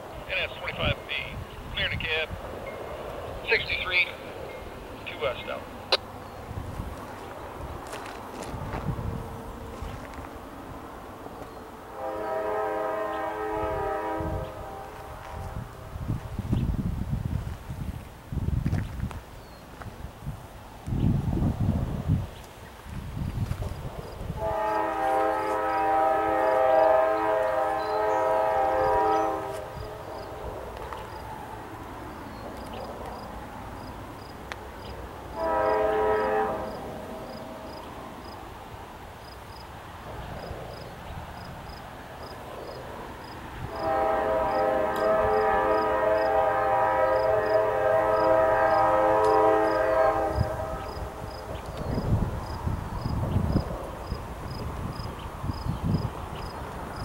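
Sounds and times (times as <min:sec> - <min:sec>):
train rumbling: 0:00.0 - 0:57.0
locomotive air horn blasts: 0:11.9 - 0:15.7, 0:24.4 - 0:29.9, 0:35.3 - 0:36.9, 0:43.6 - 0:51.2.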